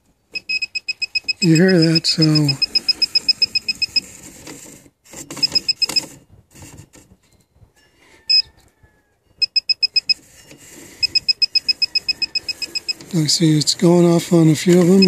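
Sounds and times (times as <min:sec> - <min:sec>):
high-pitched rapid beeping: 0:00.5 - 0:04.0.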